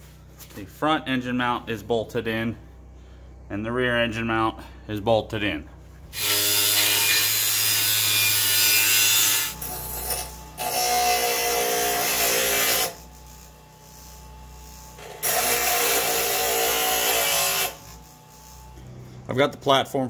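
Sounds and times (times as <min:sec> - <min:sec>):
steady motor hum: 0:00.0 - 0:19.8
angle grinder grinding steel: 0:06.1 - 0:18.9
bench grinder wheel grinding: 0:06.1 - 0:18.9.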